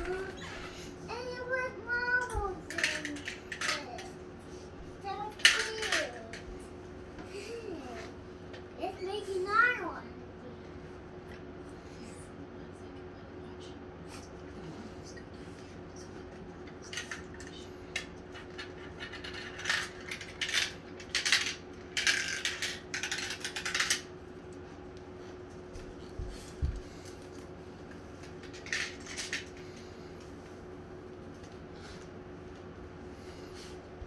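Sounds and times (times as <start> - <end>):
marbles rattling down plastic tracks: 19.2 - 24.0.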